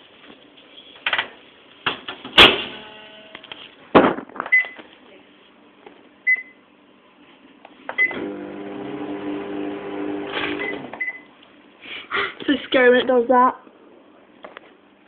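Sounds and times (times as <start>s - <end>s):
microwave oven humming: 2.5s - 3.7s, 5.6s - 11.8s.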